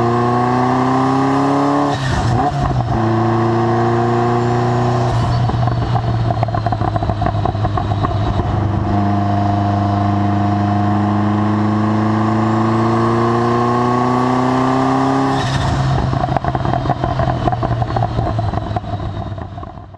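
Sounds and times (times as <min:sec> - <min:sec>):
car engine revving: 0:00.0 - 0:19.9
exhaust crackling and popping: 0:05.0 - 0:09.0, 0:15.4 - 0:19.9.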